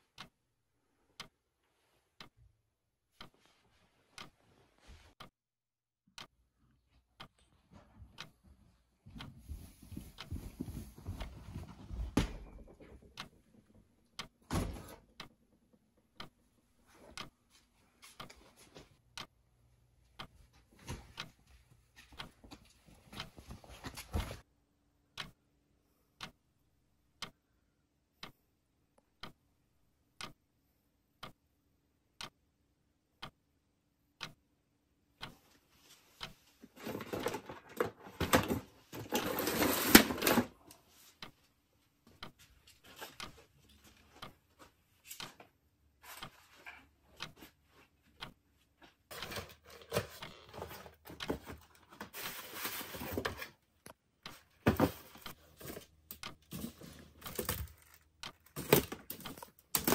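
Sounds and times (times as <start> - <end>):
steady ticking: 1.2 - 1.4, 3.2 - 3.4, 7.2 - 7.5, 8.2 - 8.4, 12.9 - 17.4, 25.2 - 25.4, 26.2 - 30.5, 31.1 - 35.4, 44.2 - 44.5, 47.2 - 47.4, 48.2 - 48.4, 56.1 - 56.5.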